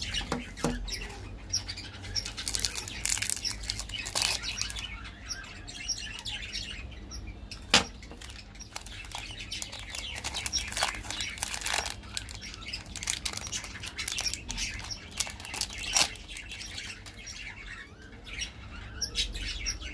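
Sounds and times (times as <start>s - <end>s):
wrappers crinkling: 2.2s - 4.8s, 8.1s - 17.2s
sharp wrapper snaps: 8.2s - 16.2s.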